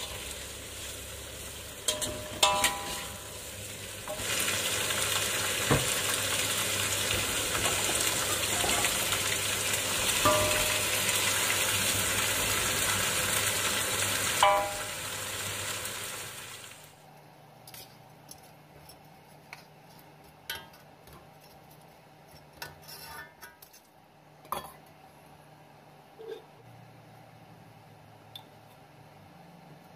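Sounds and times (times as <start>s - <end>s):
oil sizzling in a wok: 0.0s - 17.0s
metallic clinks against wok: 1.8s - 3.2s
metal spatula tapping and scraping: 1.8s - 3.3s, 17.7s - 24.9s.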